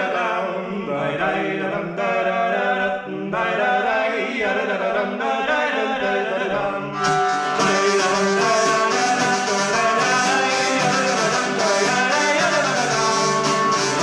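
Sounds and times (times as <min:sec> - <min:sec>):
person singing wordless syllables: 0:00.0 - 0:14.0
instrumental melody: 0:07.0 - 0:14.0.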